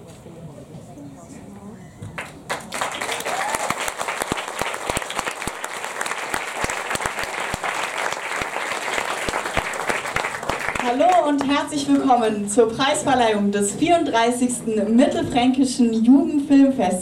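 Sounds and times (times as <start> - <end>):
audience applauding: 2.2 - 11.5.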